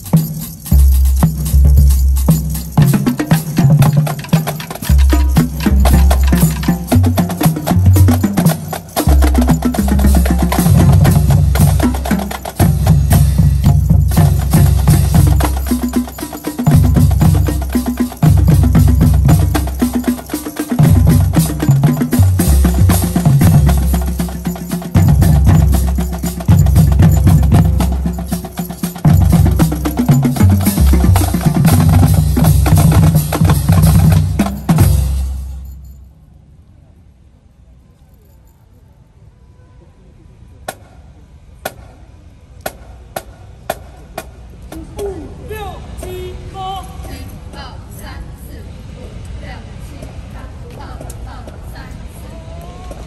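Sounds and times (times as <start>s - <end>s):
marching band music: 0.0s - 35.9s, 41.6s - 45.1s
sharp drum strikes: 0.1s - 35.8s.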